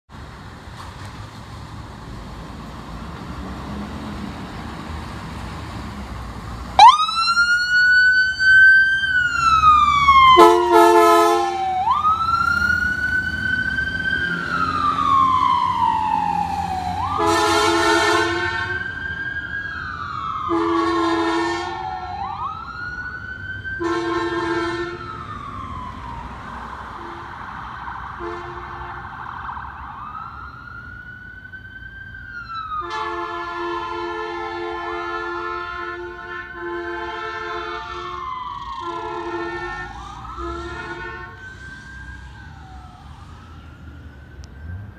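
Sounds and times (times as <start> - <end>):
ambulance siren wailing: 6.6 - 44.9
train horn blasts: 10.4 - 11.6, 17.2 - 18.8, 20.5 - 21.8, 23.8 - 25.0, 28.2 - 29.0, 32.8 - 38.2, 38.8 - 41.4.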